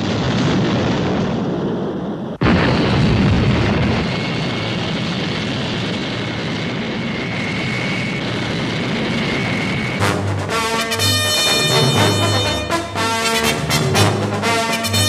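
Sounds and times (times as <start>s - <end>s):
jet engine with high whine: 3.3s - 12.7s
brass fanfare: 10.0s - 15.0s.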